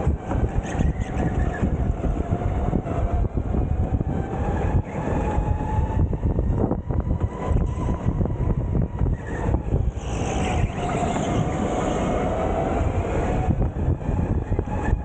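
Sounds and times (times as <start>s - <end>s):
kart chassis rumble and rattle: 0.1s - 1.8s, 8.8s - 12.1s.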